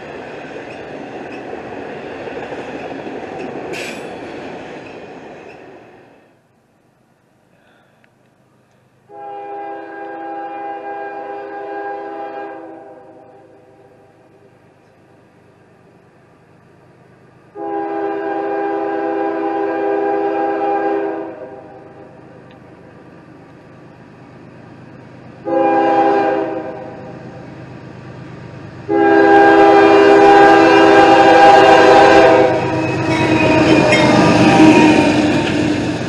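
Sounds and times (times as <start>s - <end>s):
train rumble: 0.0s - 36.0s
train air horn blasts: 9.1s - 14.0s, 17.5s - 22.1s, 25.4s - 27.3s, 28.9s - 36.0s.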